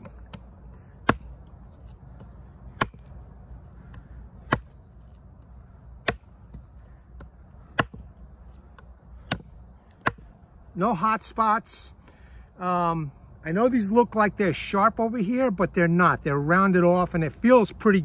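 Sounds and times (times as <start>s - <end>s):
knife chopping wooden branch: 0.0s - 3.1s, 3.7s - 5.2s, 6.0s - 8.1s, 8.8s - 10.3s.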